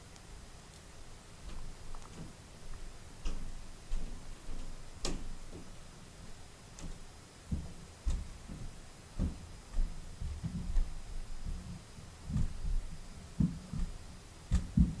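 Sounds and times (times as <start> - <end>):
soft low thumps: 6.8 - 15.0.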